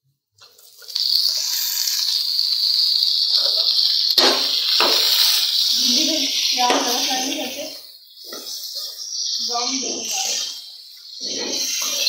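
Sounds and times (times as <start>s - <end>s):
tomatoes sizzling in hot oil: 0.4s - 12.0s
metal spoon knocking on pan: 6.7s - 7.0s.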